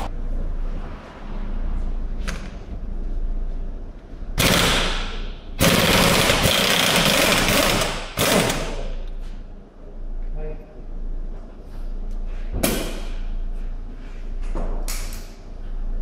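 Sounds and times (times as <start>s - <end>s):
pneumatic impact gun hammering: 4.4s - 9.0s.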